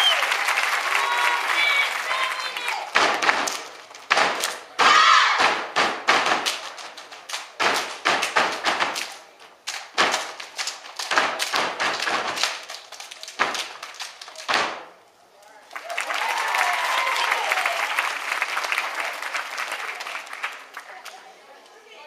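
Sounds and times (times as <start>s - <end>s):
hand claps: 0.0s - 4.7s, 5.4s - 14.8s
stomping on stage floor: 3.0s - 6.8s, 7.6s - 9.1s, 9.9s - 12.7s.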